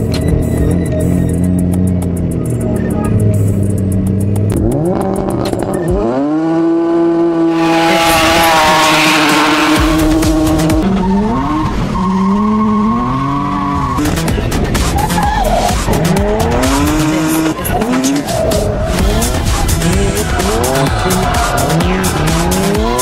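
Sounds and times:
turbocharged engine revving: 0:00.0 - 0:23.0
tires squealing: 0:07.4 - 0:23.0.

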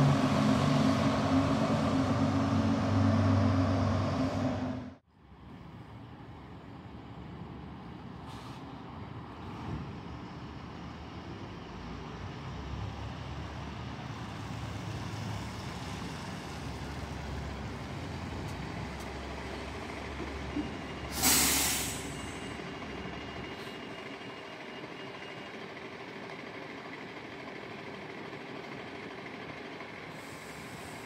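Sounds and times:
bus diesel engine running: 0:00.0 - 0:31.0
air brake hiss: 0:08.2 - 0:08.7, 0:21.1 - 0:22.6, 0:30.1 - 0:31.0.

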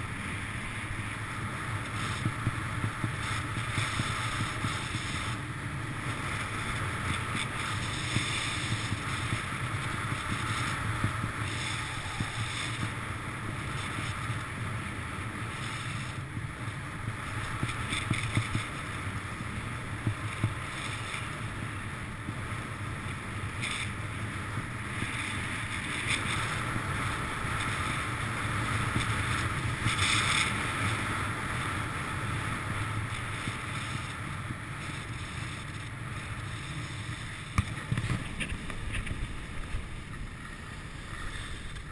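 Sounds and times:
skis hissing on snow: 0:01.0 - 0:16.2, 0:25.0 - 0:41.9
wind on microphone: 0:01.2 - 0:19.2, 0:22.2 - 0:41.9.

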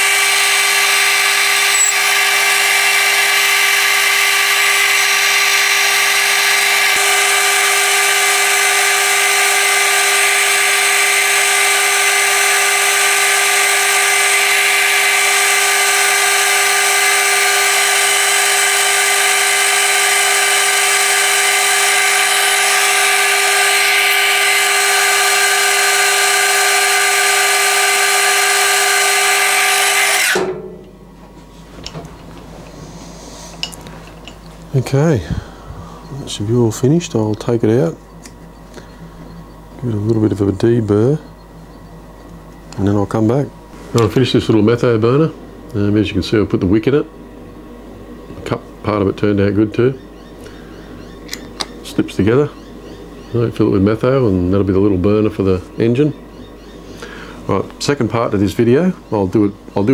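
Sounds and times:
metal lathe whining: 0:00.0 - 0:30.7.

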